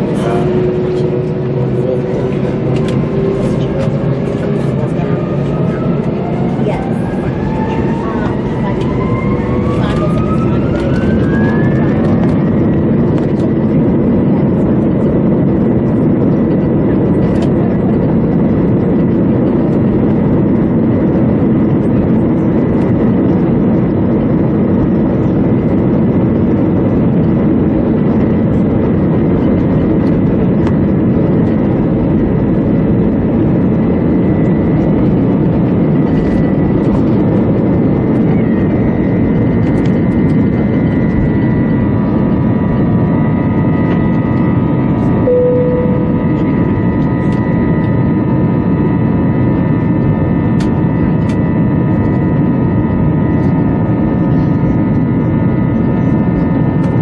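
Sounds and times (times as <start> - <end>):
jet engine roar in cabin: 0.0 - 57.0
steady engine whine: 0.0 - 57.0
short beep: 45.2 - 46.2.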